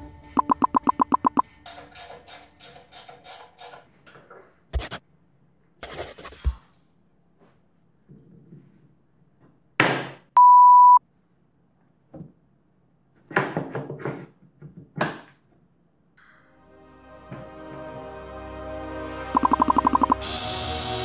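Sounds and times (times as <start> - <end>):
censor bleep: 0.4 - 1.4, 10.4 - 11.0, 19.4 - 20.2
workshop knocks and clatter: 13.2 - 15.5.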